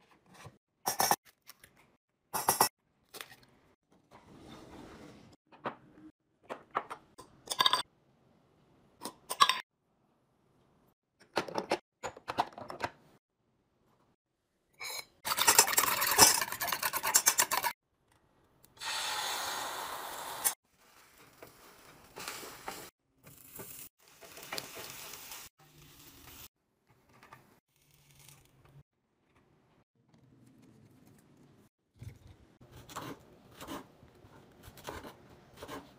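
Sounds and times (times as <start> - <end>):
glass jars and lids clinking: 7.2 - 7.9, 14.8 - 17.7
egg hissing in hot pan: 18.8 - 20.9.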